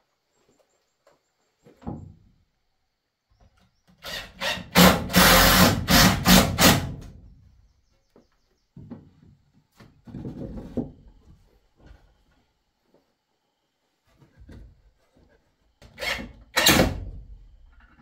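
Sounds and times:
cordless drill into wood: 4.0 - 7.0, 16.0 - 17.0.

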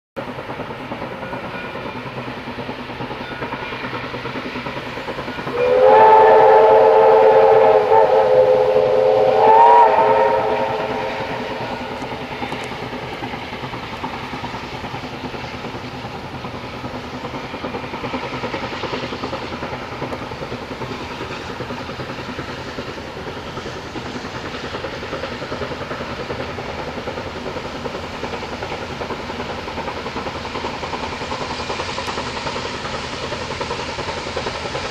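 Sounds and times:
steam whistle blasts: 5.4 - 12.7.

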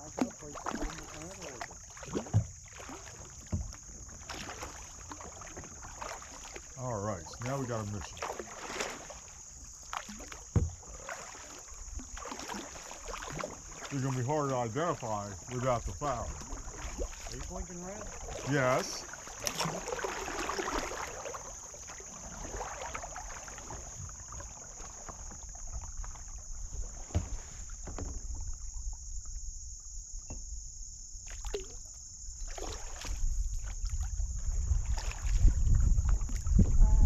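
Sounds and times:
paddle knocking against hull: 0.0 - 29.3, 30.1 - 30.6, 32.4 - 37.0
paddles dipping and splashing: 0.0 - 29.5, 31.2 - 37.0
wind rumble on microphone: 33.1 - 37.0.

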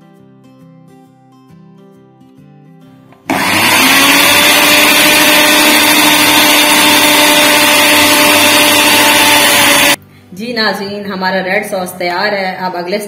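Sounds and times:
mixer grinder motor whining: 3.2 - 10.0.

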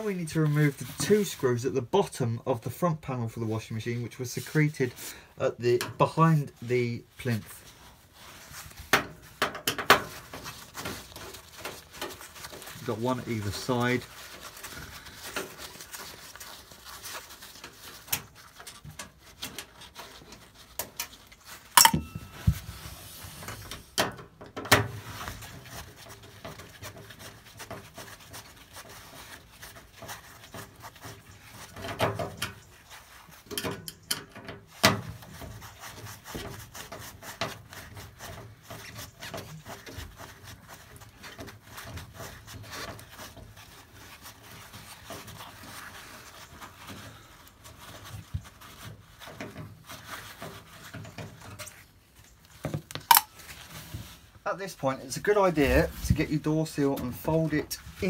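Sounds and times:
sharp click: 53.1 - 53.3.

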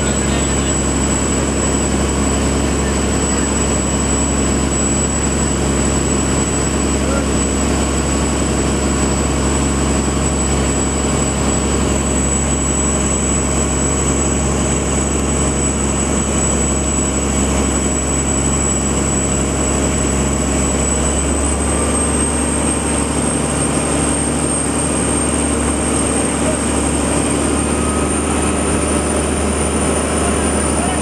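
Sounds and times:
thin high whine: 0.0 - 7.9
boat engine droning: 0.0 - 31.0.

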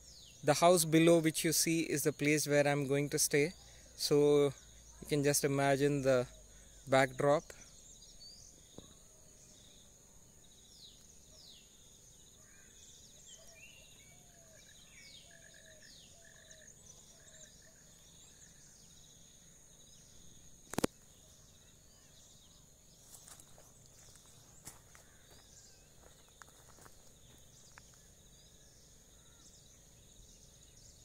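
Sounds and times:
birds chirping and trilling: 0.0 - 31.0
high-pitched insect drone: 0.5 - 9.0.

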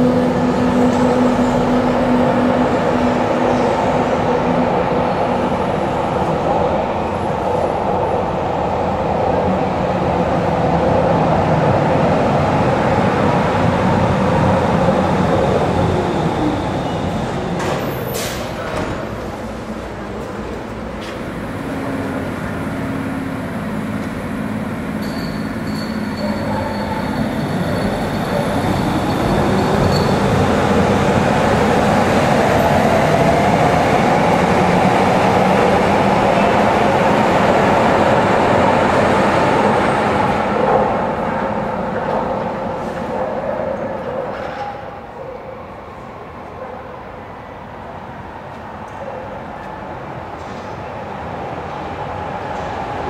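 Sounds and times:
train rumble and hum: 0.0 - 53.0
train brakes squealing: 24.9 - 30.4.

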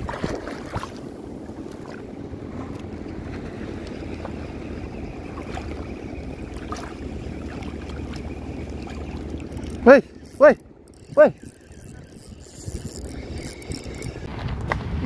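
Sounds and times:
small waves lapping: 0.0 - 14.3
low hum: 0.0 - 15.0
wind on microphone: 0.0 - 15.0
faint ticks: 7.5 - 14.3.

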